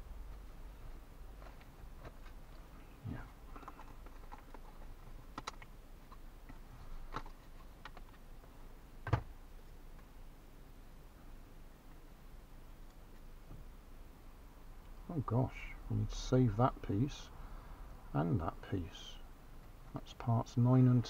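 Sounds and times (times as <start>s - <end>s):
wooden parts clicking and snapping: 3.5s - 8.3s.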